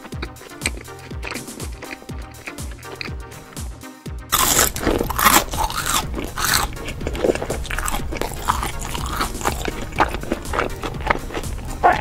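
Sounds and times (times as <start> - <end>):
background music: 0.0 - 12.0
crunchy chewing of crisp food: 0.0 - 12.0.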